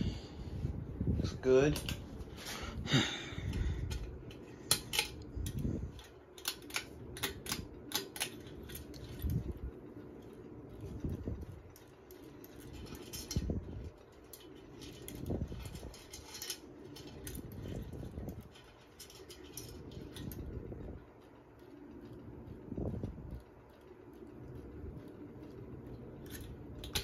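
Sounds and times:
ceiling fan motor hum: 0.0s - 27.0s
metallic clicks of fan switch: 3.4s - 9.7s.

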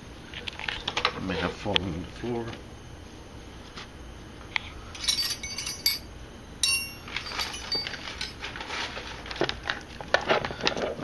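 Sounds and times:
metallic clink with ring: 5.0s - 8.4s.

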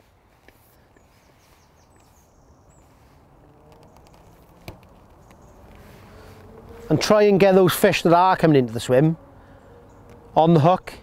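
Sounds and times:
high bird chirps: 0.7s - 3.2s.

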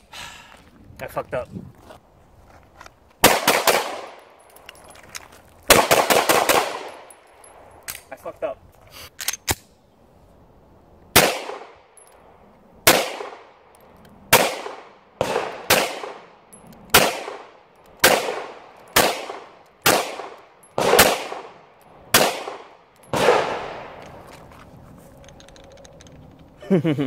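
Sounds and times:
pistol shots with echo: 3.2s - 4.2s, 5.7s - 7.1s, 11.2s - 11.8s, 12.8s - 13.5s, 14.3s - 24.0s.

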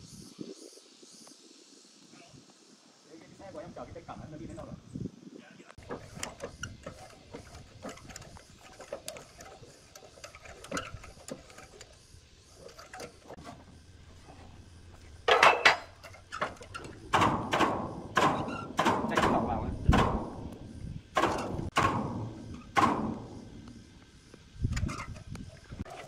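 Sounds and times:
objects clattering: 5.8s - 20.3s
objects clinking and knocking: 15.2s - 20.2s.

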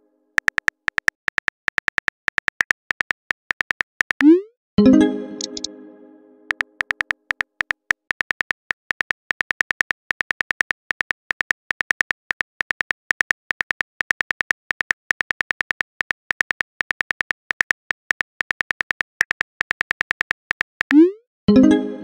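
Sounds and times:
phone keyboard key clicks: 0.4s - 4.2s, 6.5s - 20.9s.

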